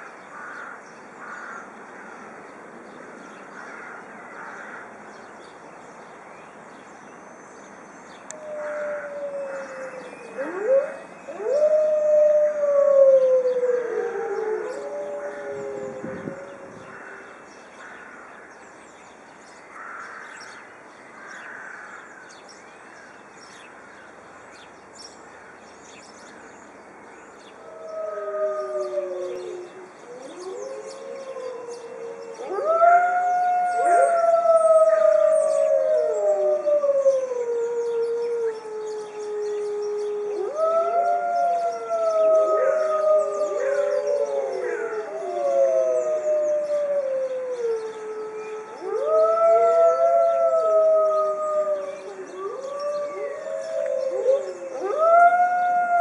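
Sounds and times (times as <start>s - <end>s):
wolves howling in chorus: 8.3s - 17.2s, 27.6s - 56.0s.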